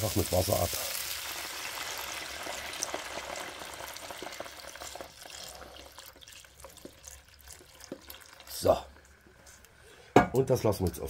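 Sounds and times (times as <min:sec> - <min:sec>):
water pouring into pot: 0:00.0 - 0:08.8
sizzling and crackling: 0:00.0 - 0:09.8.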